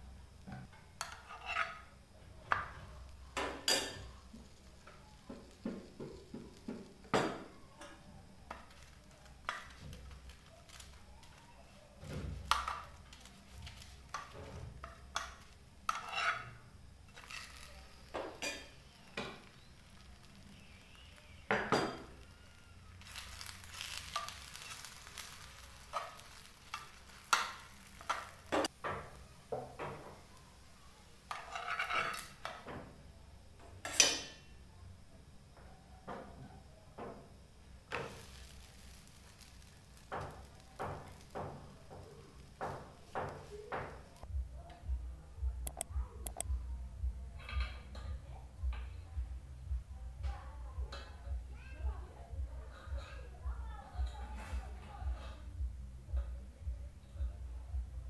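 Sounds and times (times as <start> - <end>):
oil sizzling: 0.0 - 34.6, 36.9 - 44.3
metal spoon scraping a frying pan: 0.8 - 7.0, 12.5 - 28.7, 31.3 - 32.6, 37.9 - 41.7.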